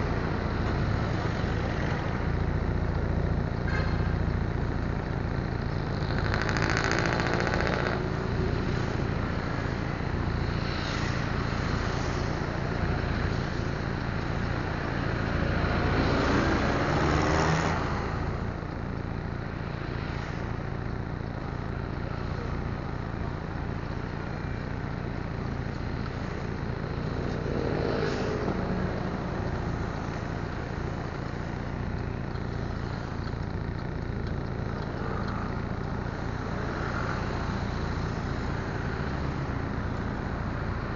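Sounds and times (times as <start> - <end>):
vehicles passing by: 0.0 - 40.9
low engine rumble: 18.1 - 40.9.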